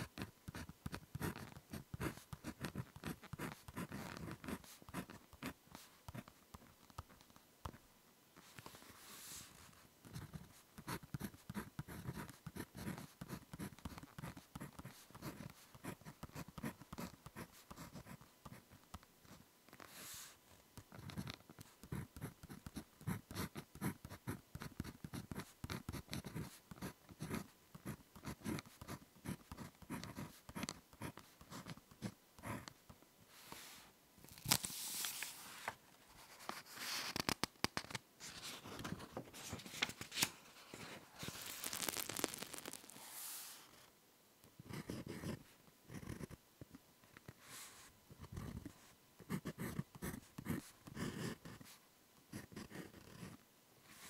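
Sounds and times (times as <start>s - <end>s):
pen scratching on paper: 0.0s - 6.3s, 10.1s - 18.6s, 20.9s - 32.8s, 44.7s - 46.4s, 49.3s - 51.7s, 52.3s - 53.4s
notebook page turning: 34.3s - 43.6s.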